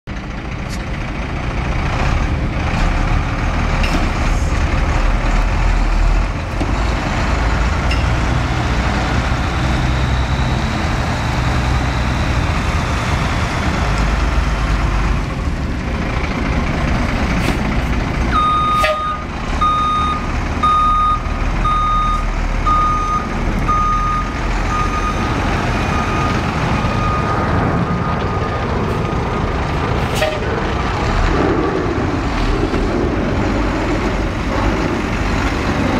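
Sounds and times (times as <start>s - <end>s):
truck engine running: 0.1s - 35.9s
reversing alarm beeping: 18.3s - 28.6s.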